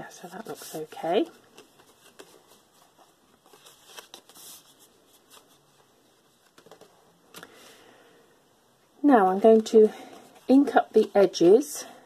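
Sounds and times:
card rustling: 0.2 - 7.5.

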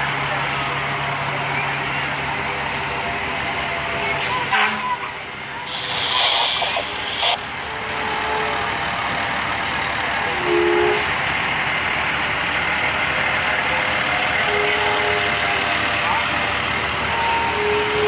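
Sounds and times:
diesel truck engines running: 0.0 - 18.0
truck horn toot: 4.1 - 9.0, 10.2 - 11.2, 14.4 - 15.6, 17.0 - 18.0
air brakes hissing: 5.6 - 7.4.

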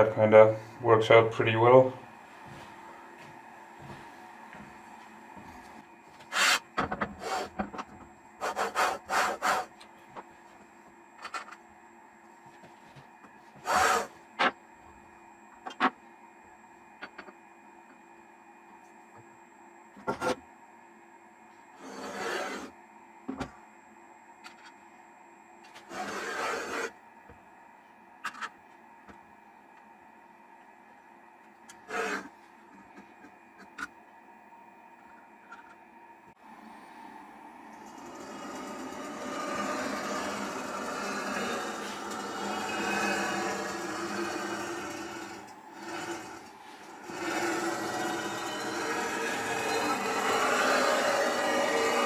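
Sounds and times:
metal scraping along rail: 31.8 - 32.3, 37.8 - 52.0.

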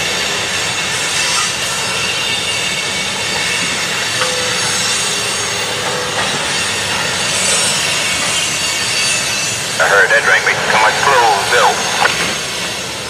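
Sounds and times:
train wheels rolling on rail: 0.0 - 9.8.

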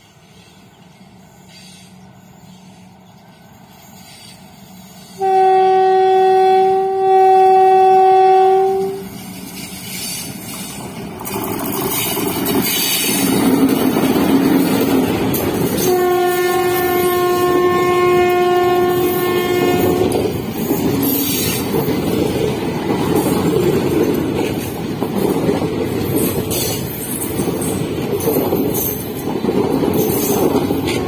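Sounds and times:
train wheels rushing on rails: 0.0 - 31.0
locomotive horn blast: 5.2 - 9.1, 15.8 - 20.3.

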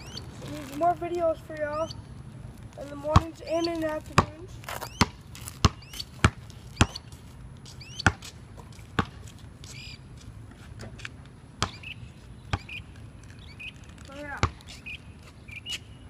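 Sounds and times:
basketball bouncing on concrete: 2.8 - 9.4, 11.6 - 11.9, 12.5 - 12.8, 14.2 - 14.6.

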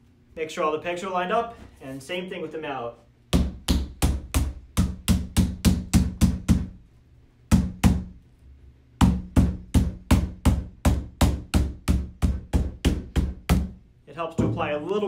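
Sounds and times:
rubber mallet striking plastic: 3.3 - 6.8, 7.5 - 8.2, 9.0 - 13.8, 14.4 - 14.8.

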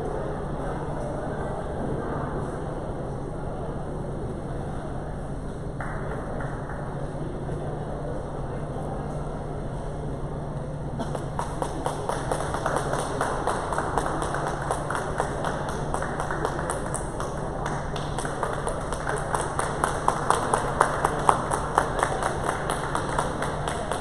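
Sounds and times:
steady low hum: 0.0 - 24.0
hand clapping in a hall: 5.4 - 24.0.

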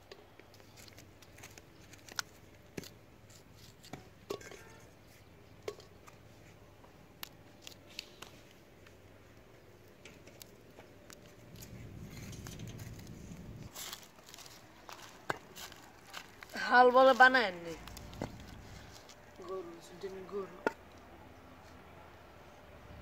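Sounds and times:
bean pods snapping: 0.5 - 4.0, 7.1 - 13.1, 13.7 - 19.6
low rumble: 11.4 - 13.7.

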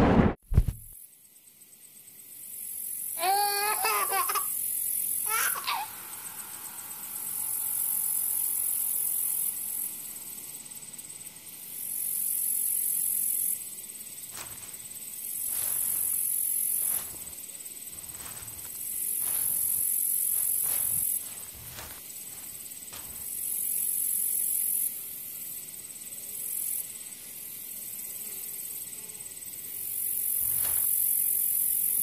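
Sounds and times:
high hiss: 2.6 - 24.8
high-pitched giggle: 3.2 - 4.5, 5.3 - 6.0
footsteps: 14.3 - 23.4, 30.4 - 30.9.

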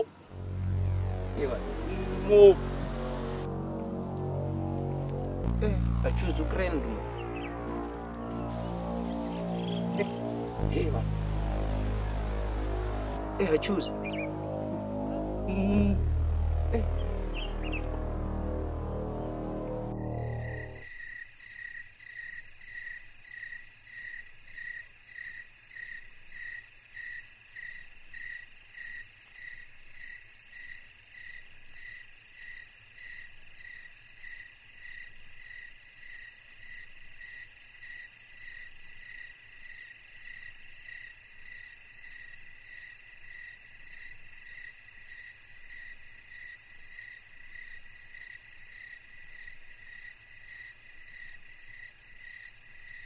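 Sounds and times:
crickets chirping: 0.0 - 53.0
continuous insect trill: 2.5 - 13.0, 17.3 - 53.0.

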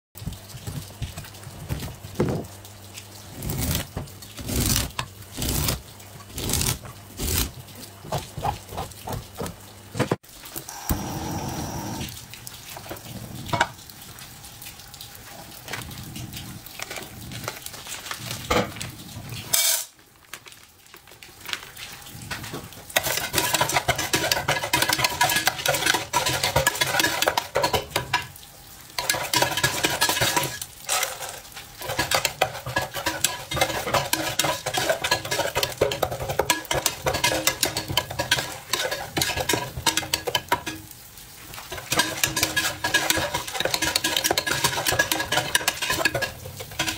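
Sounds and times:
corn sizzling in hot oil: 3.0 - 7.5, 10.2 - 15.8, 16.4 - 46.9
metal spoon scraping a pot: 29.0 - 40.8, 41.7 - 46.9.

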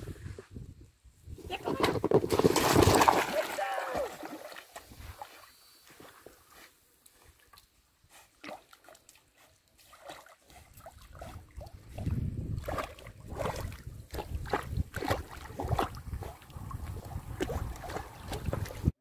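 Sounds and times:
dog splashing in water: 2.3 - 5.3, 9.8 - 18.9.

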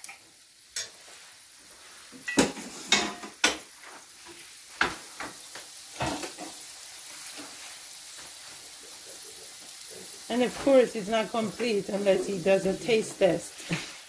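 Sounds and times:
metal utensils clicking on pan: 0.0 - 1.0
eggs sizzling faintly in a skillet: 0.0 - 14.0.

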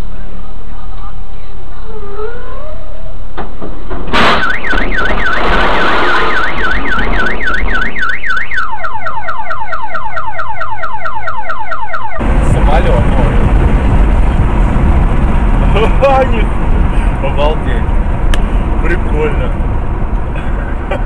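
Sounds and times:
low road and engine noise: 0.0 - 21.0
car alarm chirping: 4.2 - 12.2
car alarm whooping: 4.3 - 12.2.

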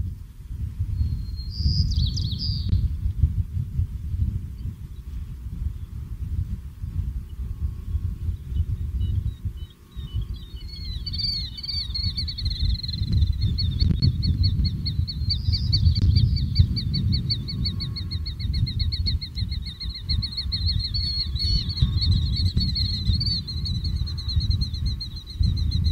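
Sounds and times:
bird calling high repeated notes: 9.6 - 25.9.

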